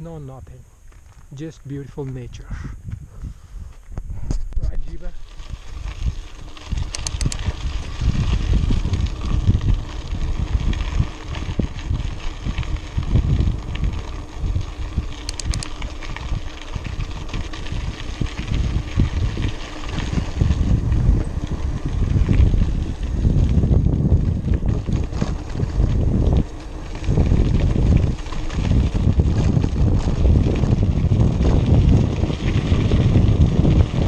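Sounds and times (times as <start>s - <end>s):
tyre noise on dirt road: 0.0s - 34.0s
wind buffeting microphone: 0.0s - 34.0s
bike clicks and rattles: 3.7s - 34.0s.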